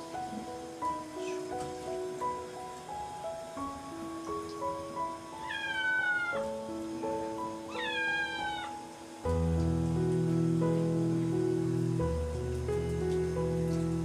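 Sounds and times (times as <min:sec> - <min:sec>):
soft background music: 0:00.0 - 0:14.0
kitten meowing: 0:05.4 - 0:06.5, 0:07.7 - 0:08.8.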